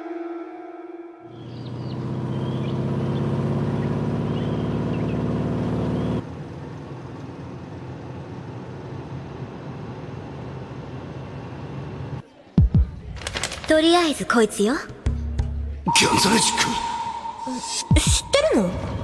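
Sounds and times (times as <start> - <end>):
car engine running: 1.5 - 6.2
faint high chirps: 15.9 - 19.0.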